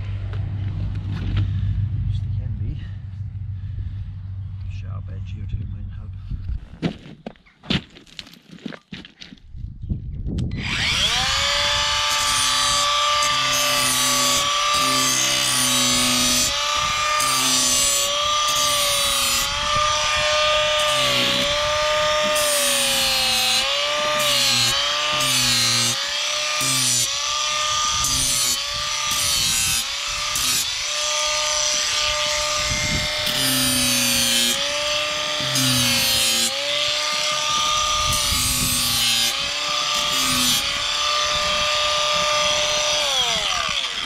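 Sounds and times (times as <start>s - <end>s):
motor machine whine: 0.0s - 6.6s, 10.4s - 44.0s
low note cutting in and out: 0.0s - 6.8s.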